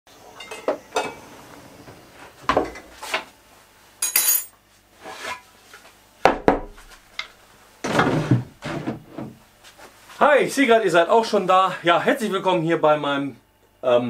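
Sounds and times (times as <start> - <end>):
bright metallic jingle: 4.0 - 4.5.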